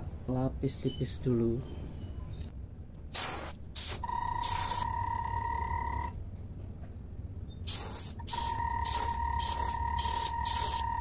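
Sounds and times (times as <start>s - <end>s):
low steady hum: 0.0s - 11.0s
airbrush spraying hissing bursts: 3.1s - 4.8s, 7.7s - 11.0s.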